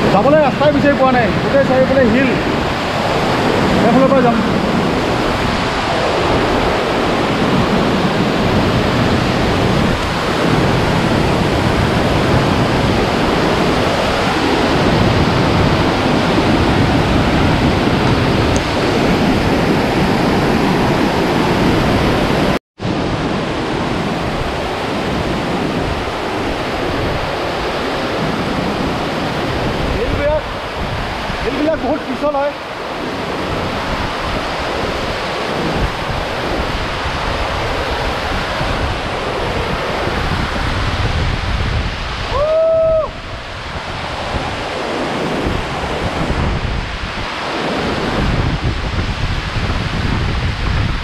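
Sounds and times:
waterfall rushing: 0:00.0 - 0:51.0.

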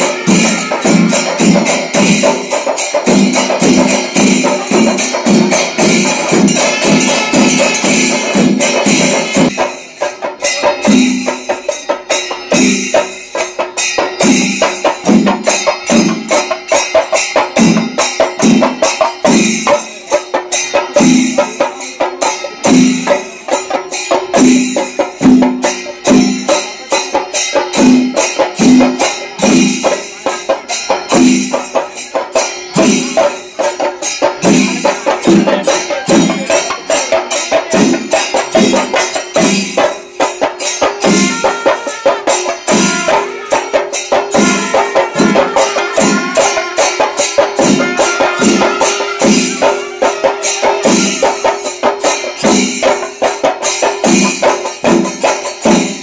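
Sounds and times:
fast percussion strokes: 0:00.0 - 0:56.0
jingling cymbals: 0:00.0 - 0:56.0.

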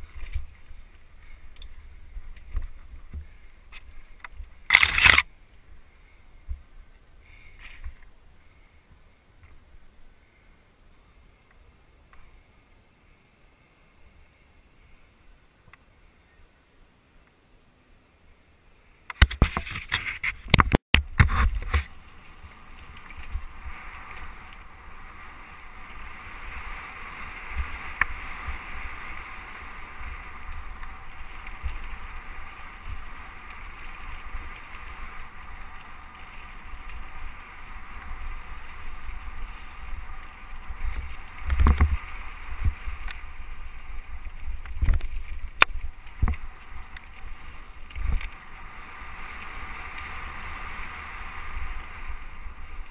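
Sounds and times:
tyre and wind noise: 0:00.0 - 0:08.2, 0:19.1 - 0:52.9.

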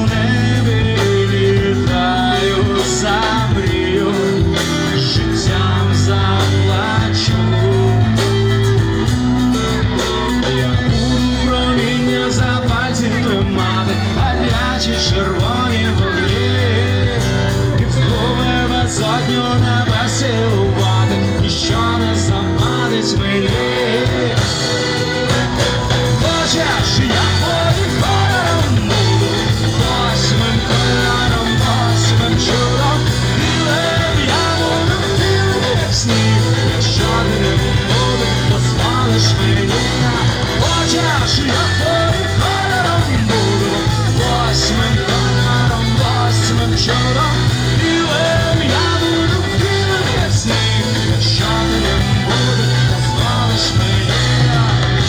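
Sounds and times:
live rock band playing: 0:00.0 - 0:55.0
person singing: 0:00.0 - 0:55.0.

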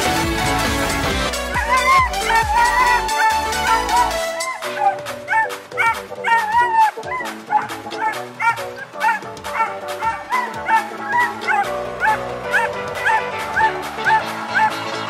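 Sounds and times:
background music with beat: 0:00.0 - 0:15.0
dog yipping and barking: 0:01.6 - 0:14.8.

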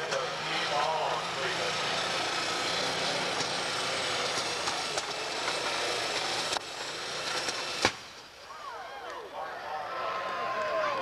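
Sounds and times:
tractor engine running hard: 0:00.0 - 0:08.0.

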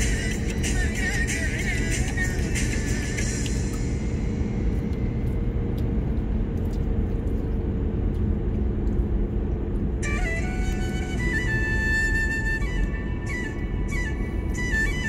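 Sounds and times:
car cabin rumble: 0:00.0 - 0:15.0
faint engine hum: 0:00.0 - 0:15.0
tyre and road noise: 0:00.0 - 0:15.0.

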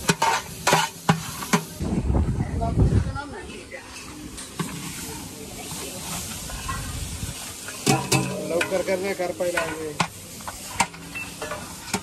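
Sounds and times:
ladle clanking and scraping pot: 0:00.0 - 0:01.8, 0:03.9 - 0:05.1, 0:07.6 - 0:12.0
oil sizzling: 0:00.0 - 0:02.0, 0:03.3 - 0:12.0.

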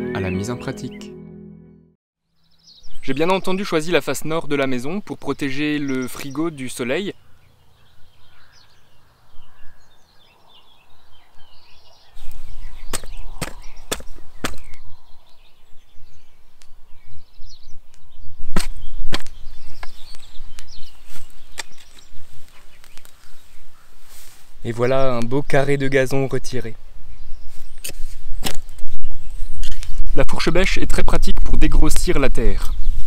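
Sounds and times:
spade chopping into soil: 0:12.8 - 0:14.8, 0:18.5 - 0:20.1, 0:21.5 - 0:22.0, 0:27.8 - 0:28.7.

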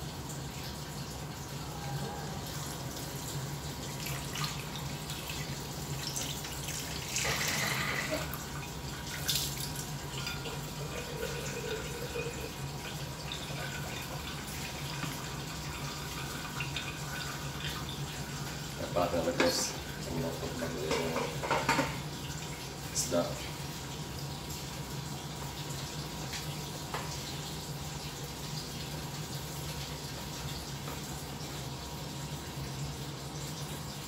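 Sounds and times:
water hissing and bubbling: 0:06.8 - 0:08.6.

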